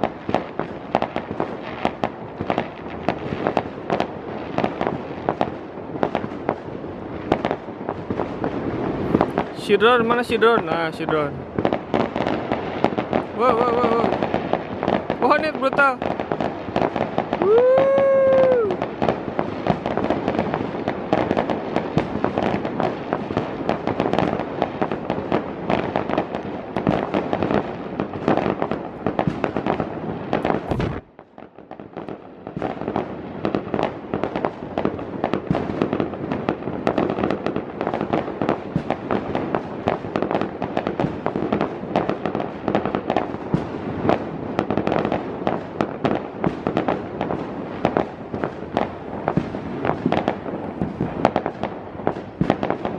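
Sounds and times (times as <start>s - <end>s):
fireworks crackling and banging: 0.0s - 52.9s.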